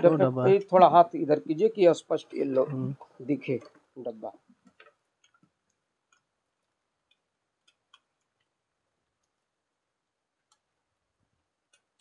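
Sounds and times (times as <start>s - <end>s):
faint clicks of rubber bands: 3.0s - 9.5s.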